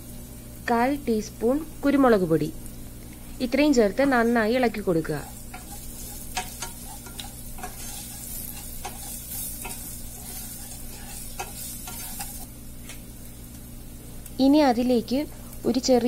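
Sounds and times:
spices sizzling in oil: 0:00.0 - 0:16.0
spatula scraping a pan: 0:05.2 - 0:12.5.

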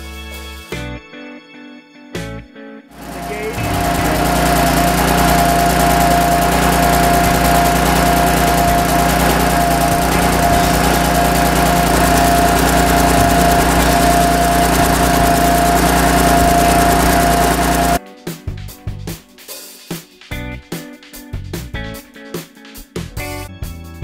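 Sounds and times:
diaphragm pump whining: 0:03.0 - 0:18.0.

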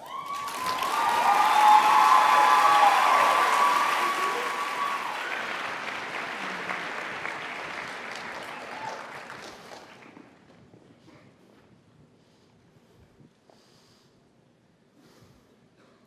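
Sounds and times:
audience applause: 0:00.0 - 0:10.4.

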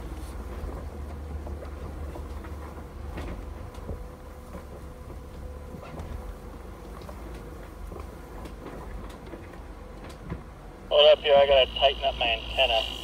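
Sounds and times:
vehicle engine rumble: 0:00.0 - 0:13.0
faint steady hum: 0:10.9 - 0:13.0.

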